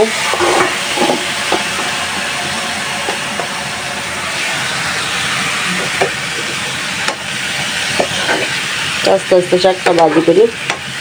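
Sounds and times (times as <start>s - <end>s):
greens sizzling in oil: 0.0s - 11.0s.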